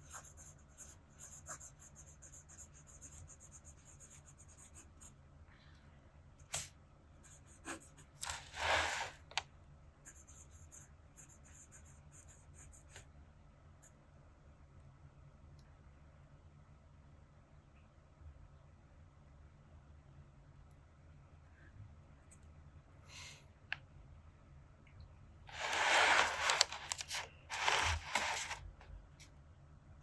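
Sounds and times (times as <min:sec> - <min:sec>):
fountain pen scratching on paper: 0:25.5 - 0:28.6.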